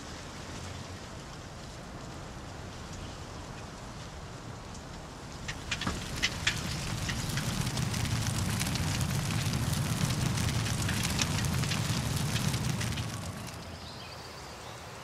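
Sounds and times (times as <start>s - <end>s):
fire crackling: 5.3s - 14.2s.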